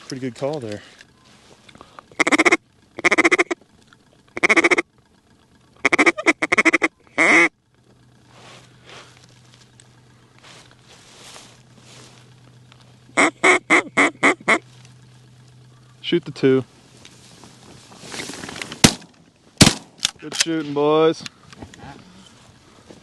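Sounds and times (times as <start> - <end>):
faint field sounds: 0.0 - 23.0
low steady hum: 0.0 - 23.0
duck call quacks: 2.1 - 3.6, 4.4 - 4.8, 5.8 - 7.5, 13.2 - 14.6.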